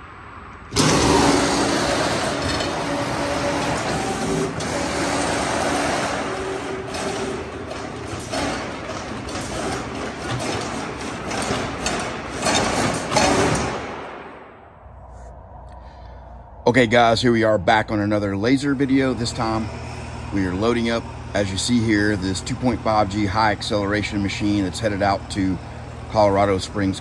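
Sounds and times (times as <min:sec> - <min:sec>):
servo drives whining: 0:00.5 - 0:14.1, 0:17.9 - 0:27.0
machine clicks and clacks: 0:00.7 - 0:14.1.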